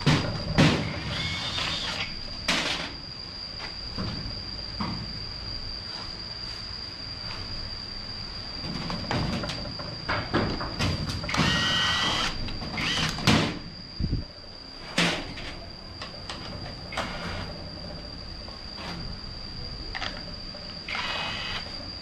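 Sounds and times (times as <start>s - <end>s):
cordless drill whirring: 0.8s - 2.1s, 11.3s - 13.2s, 20.9s - 21.6s.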